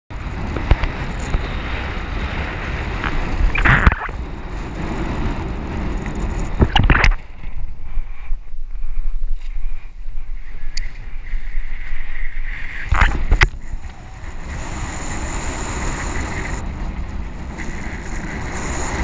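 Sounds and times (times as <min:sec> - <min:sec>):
wind and water rushing: 0:00.1 - 0:07.7, 0:12.3 - 0:19.0
low wind rumble on microphone: 0:00.1 - 0:19.0.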